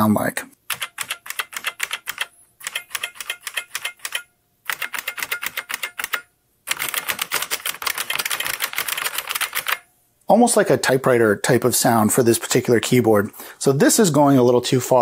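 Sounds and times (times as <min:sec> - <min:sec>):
clicky keyboard typing: 0:00.7 - 0:09.8.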